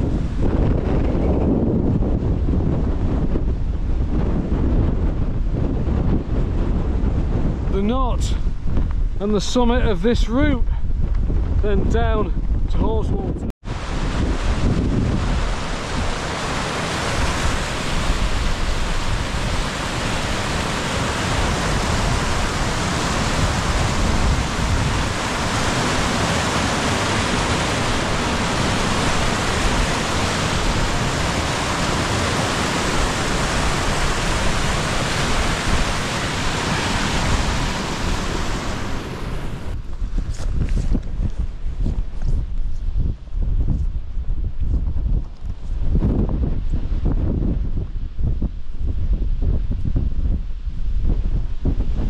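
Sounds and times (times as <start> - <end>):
stream rushing over rocks: 13.7 - 39.8.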